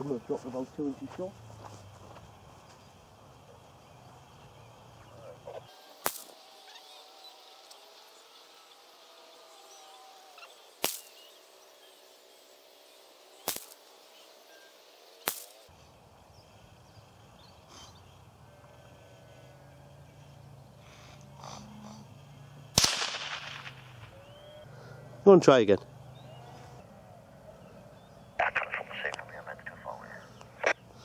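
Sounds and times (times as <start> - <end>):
rifle shots: 22.7 - 24.1.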